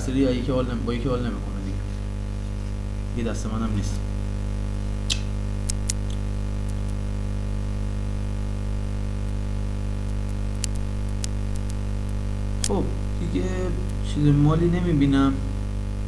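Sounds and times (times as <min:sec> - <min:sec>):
electrical mains hum: 0:00.0 - 0:16.0
sharp clicks: 0:05.0 - 0:07.0, 0:10.0 - 0:12.8.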